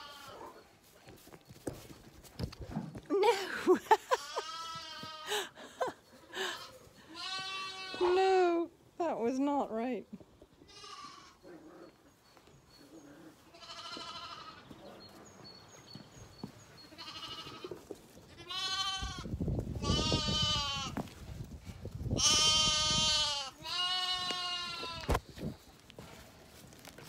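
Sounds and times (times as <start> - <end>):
lambs bleating: 0.0 - 0.4, 4.2 - 5.4, 6.4 - 8.4, 10.7 - 11.5, 13.4 - 14.7, 16.8 - 21.0, 22.2 - 25.2.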